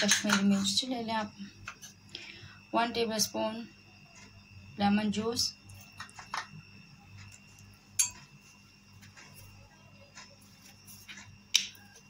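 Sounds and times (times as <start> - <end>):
spoon clinking against glass bowl: 8.0 - 8.2.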